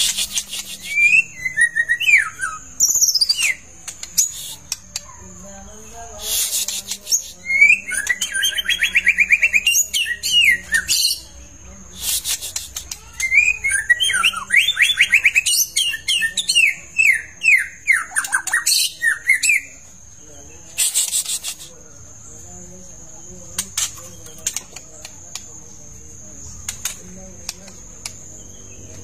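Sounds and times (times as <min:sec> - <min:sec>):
bird singing trills and whistles: 0:00.0 - 0:05.1, 0:06.2 - 0:11.3, 0:12.0 - 0:19.9.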